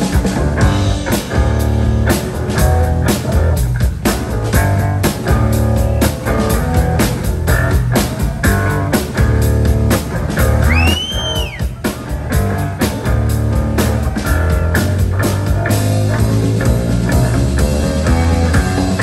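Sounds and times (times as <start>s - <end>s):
funky electric bass line: 0.0s - 19.0s
rock band playing: 0.0s - 19.0s.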